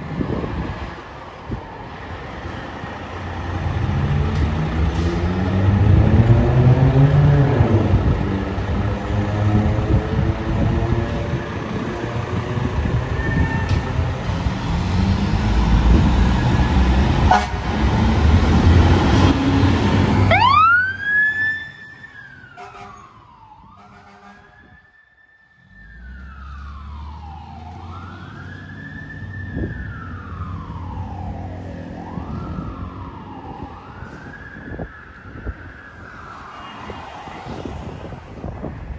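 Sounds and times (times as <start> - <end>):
electronic siren wailing: 20.2 - 38.0.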